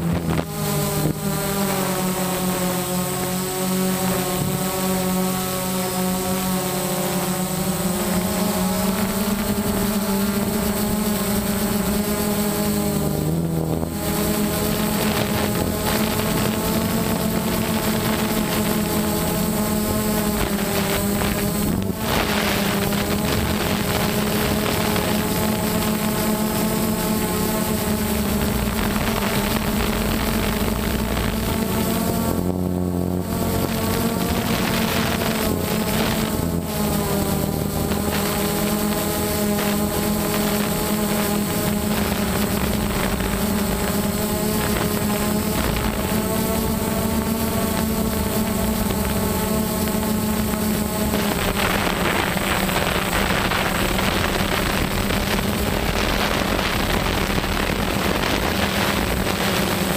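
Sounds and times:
drone propellers buzzing: 0.0s - 59.9s.

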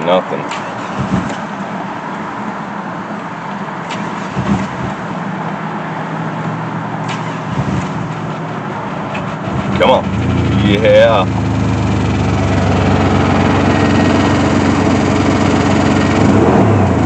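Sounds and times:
engine cranking on starter: 0.4s - 1.5s, 3.8s - 5.2s, 7.0s - 8.3s.

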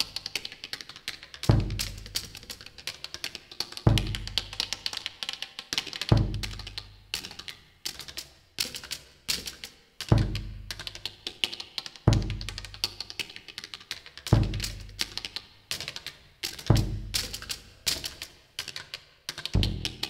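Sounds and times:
dry tapping and clicking: 0.0s - 20.0s
deep drum hits: 1.5s - 1.9s, 3.9s - 4.4s, 6.1s - 6.6s, 12.1s - 12.5s, 14.4s - 15.0s, 16.7s - 17.2s, 19.6s - 20.0s.

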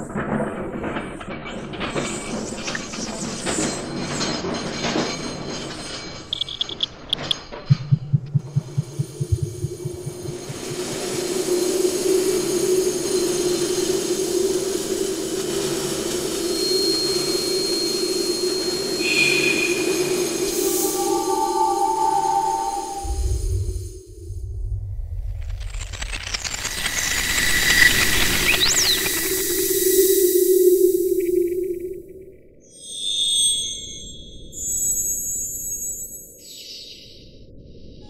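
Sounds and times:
thin high tone: 6.3s - 7.4s, 17.2s - 24.2s
low pulses: 6.3s - 11.7s, 18.6s - 32.2s
low drone with hiss: 8.4s - 24.6s.

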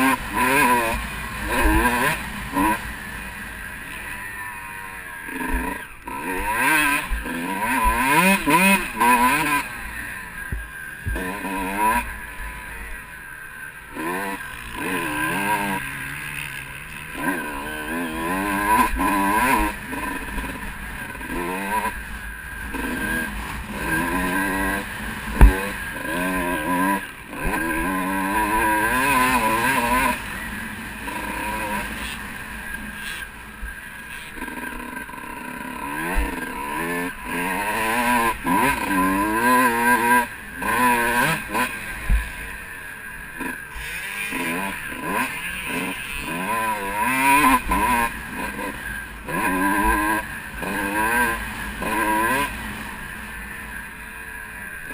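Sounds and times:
motocross engine revving: 0.0s - 54.9s.

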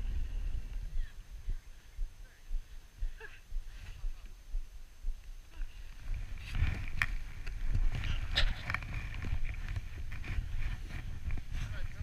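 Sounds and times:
wind buffeting microphone: 0.0s - 12.0s
sled runners rumbling on snow: 5.5s - 12.0s.

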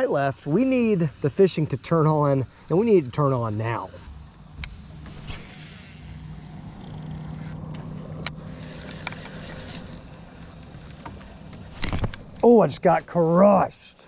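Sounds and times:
low motor hum: 0.0s - 13.4s
fishing reel clicks: 4.6s - 11.0s.

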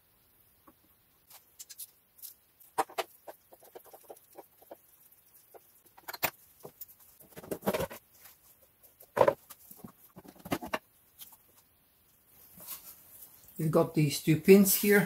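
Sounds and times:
plastic parts clicking and knocking: 5.9s - 8.0s, 9.1s - 10.9s.

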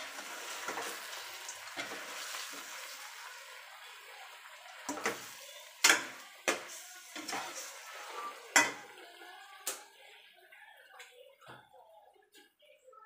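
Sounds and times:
metal spatula clanking in a pot: 4.9s - 8.9s.

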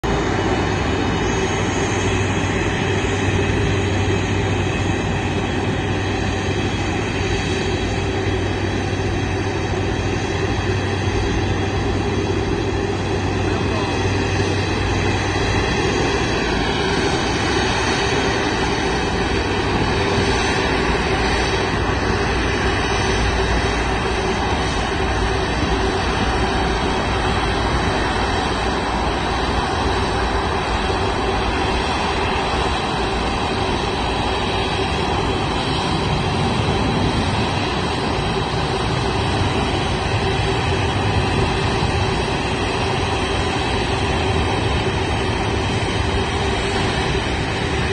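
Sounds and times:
jet airliner engines whining: 0.0s - 47.9s.

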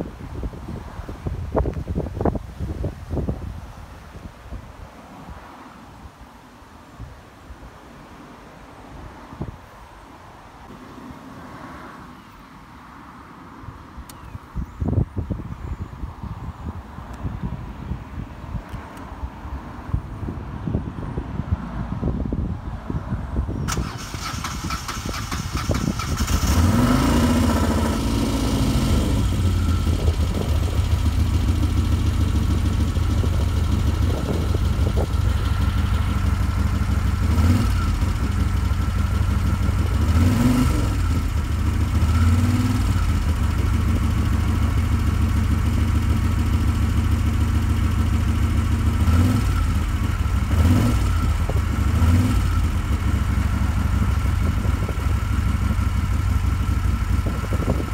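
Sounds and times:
motorcycle engine idling: 27.6s - 40.2s, 40.8s - 57.9s.

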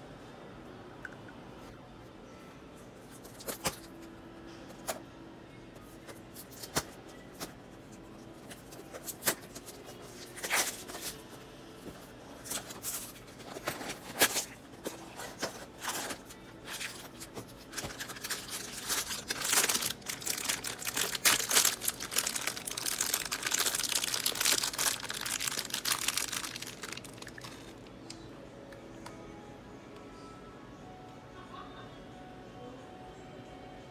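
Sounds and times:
foil bag crinkling: 12.4s - 27.8s.

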